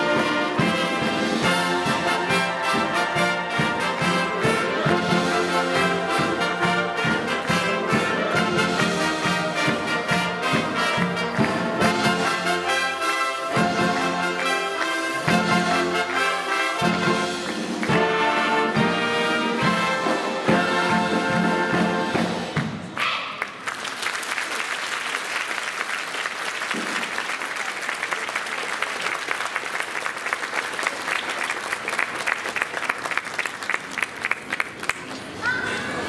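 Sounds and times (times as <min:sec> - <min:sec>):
wind band playing: 0:00.0 - 0:22.6
audience applauding: 0:23.4 - 0:36.0.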